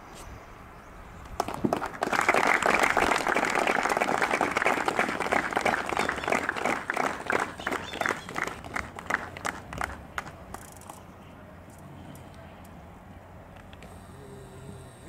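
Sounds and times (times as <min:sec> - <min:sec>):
crowd applauding: 0:01.4 - 0:11.0.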